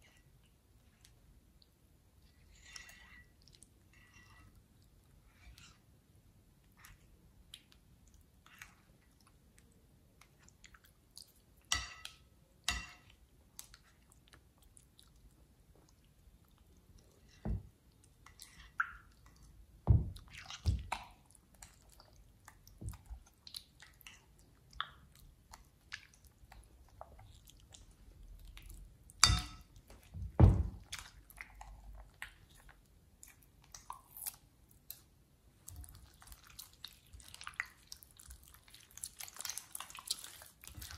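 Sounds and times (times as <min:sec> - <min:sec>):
metal spoon in glass bowl: 0:29.2 - 0:29.7.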